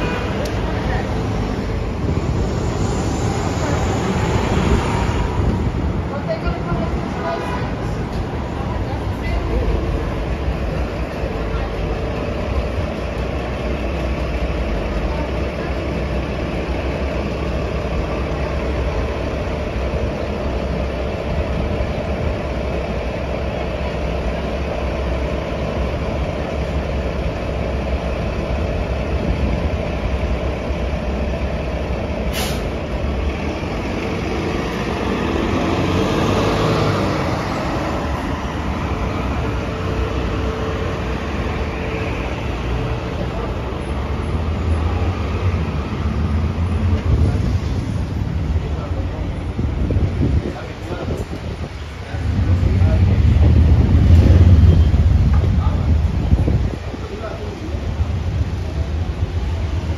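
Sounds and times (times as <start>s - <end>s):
bus diesel engine idling: 0.0s - 59.9s
street traffic: 0.0s - 59.9s
air brakes hissing: 32.2s - 32.8s.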